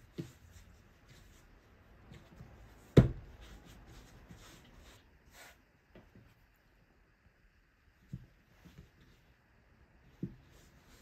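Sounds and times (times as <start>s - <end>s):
hands kneading dough: 0.0s - 6.6s
dough thump: 2.0s - 3.6s.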